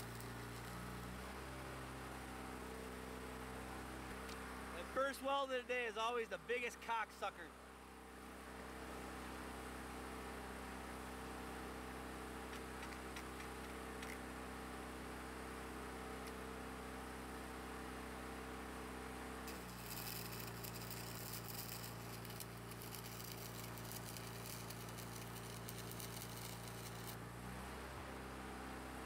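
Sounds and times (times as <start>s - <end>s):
welding arc crackling: 0.0s - 1.4s, 19.5s - 27.2s
machine hum: 19.5s - 27.6s.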